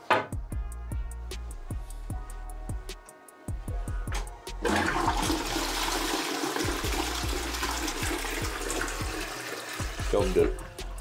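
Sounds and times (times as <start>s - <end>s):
toilet flushing water rushing: 4.6s - 10.6s.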